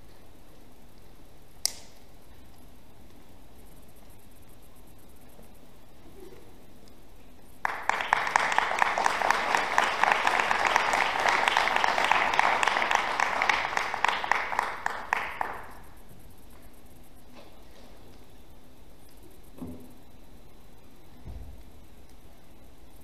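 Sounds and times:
audience applauding: 7.6 - 15.8.

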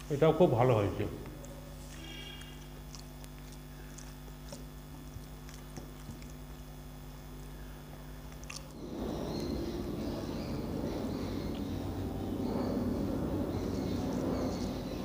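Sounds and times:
steady low hum: 0.0 - 15.0
soft chewing: 1.2 - 8.8.

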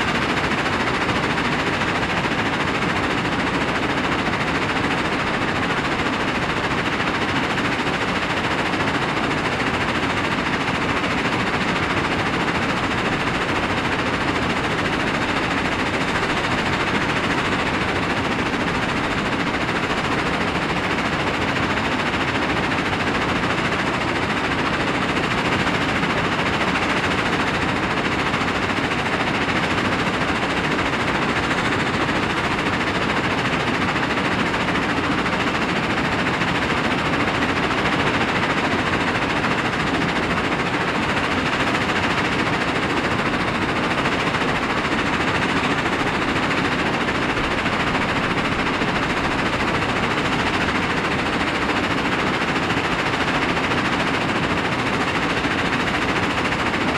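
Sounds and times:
machinery running: 0.0 - 56.9.

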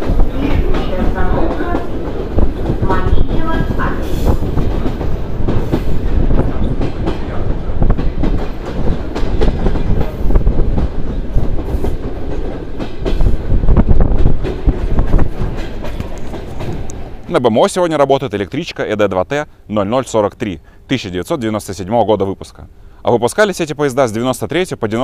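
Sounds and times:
wind rushing in: 0.0 - 17.3
train rumbling: 0.0 - 25.0
wheels clicking over rail joints: 14.2 - 17.3.

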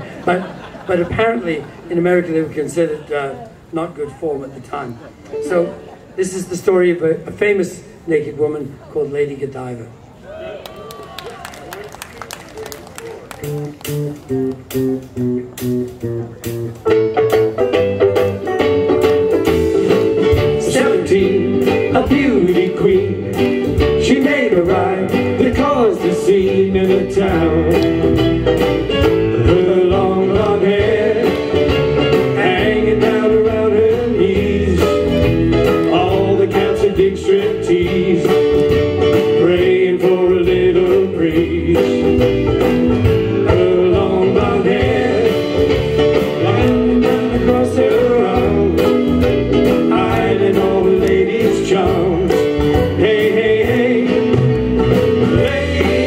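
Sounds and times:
guitar: 13.4 - 56.0
piano: 13.4 - 56.0
man singing novelty song: 20.3 - 28.3, 29.1 - 56.0.

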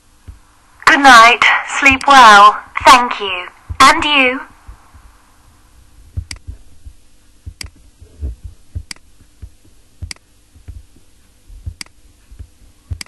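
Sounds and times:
faint steady hum: 0.0 - 13.0
soft low thumps: 0.2 - 0.5, 3.6 - 3.9, 4.5 - 13.0
computer mouse clicking: 7.6 - 7.8, 11.7 - 12.0.

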